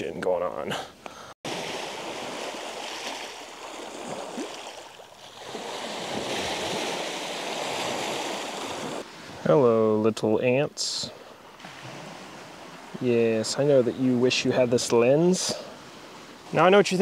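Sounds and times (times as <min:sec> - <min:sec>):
small waves washing ashore: 0:01.5 - 0:09.4, 0:11.2 - 0:13.0, 0:15.6 - 0:16.7.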